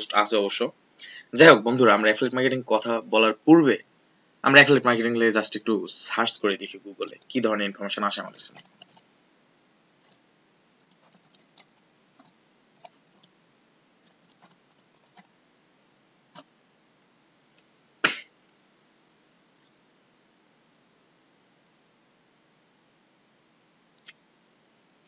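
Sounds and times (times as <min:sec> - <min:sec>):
typing on computer keyboard: 0:08.5 - 0:09.0, 0:10.8 - 0:13.3, 0:14.0 - 0:15.3.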